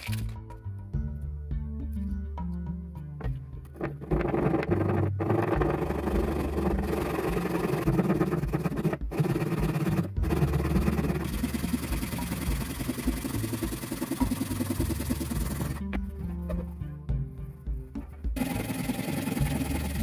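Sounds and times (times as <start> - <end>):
hand saw cutting plastic: 3.8 - 15.8.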